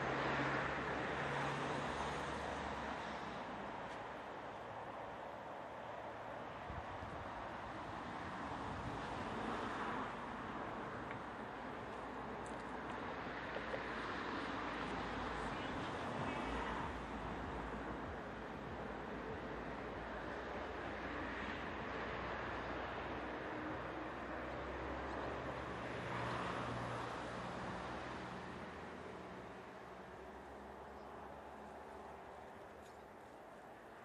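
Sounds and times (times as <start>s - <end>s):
wind across microphone: 6.6s - 9.9s.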